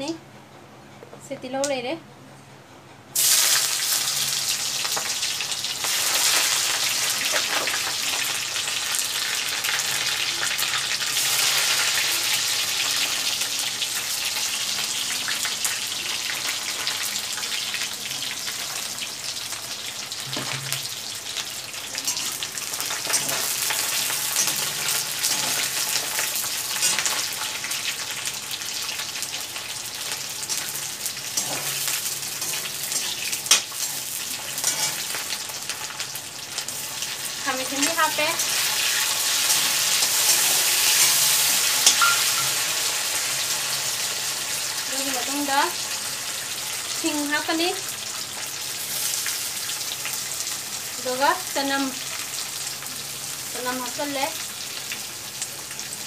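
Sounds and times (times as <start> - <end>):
food sizzling in hot oil: 3.2 - 56.0
metal spoon stirring in pan: 22.0 - 27.8, 30.1 - 35.4, 38.4 - 42.6.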